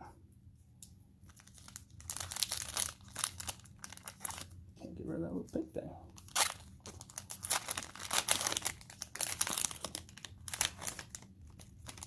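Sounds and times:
foil wrapper crinkling: 1.3s - 4.6s, 6.2s - 12.0s.

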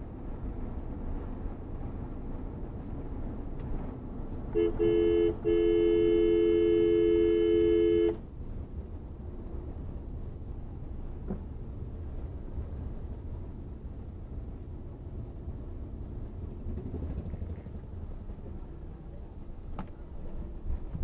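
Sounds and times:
engine and tyre noise: 0.0s - 21.0s
two-tone car horn honking: 4.5s - 8.2s.

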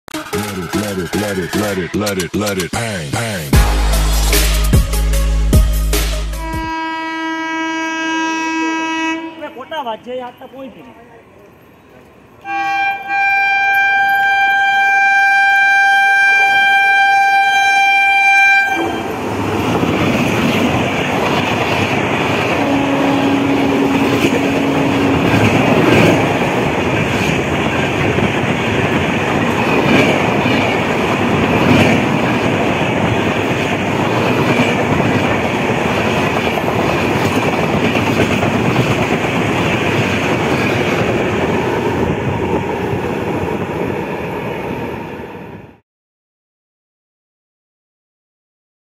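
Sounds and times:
train coaches rushing past: 6.1s - 15.4s, 16.3s - 45.8s
train horn blast: 6.2s - 9.7s, 12.4s - 19.2s, 22.4s - 26.8s
wheels clacking over rails: 19.0s - 44.1s.

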